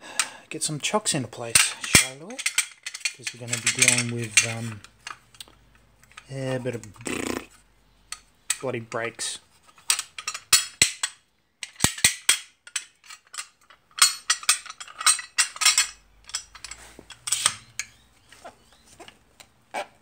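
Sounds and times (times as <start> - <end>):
hard objects clinking and rattling: 1.5 - 7.4, 9.6 - 19.2.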